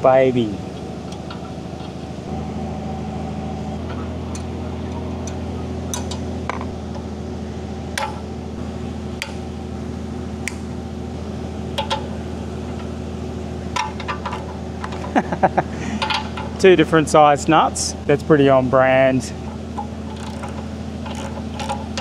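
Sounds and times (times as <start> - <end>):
steady low hum: 0.0 - 22.0
metal tools clinking: 13.8 - 16.7, 19.8 - 22.0.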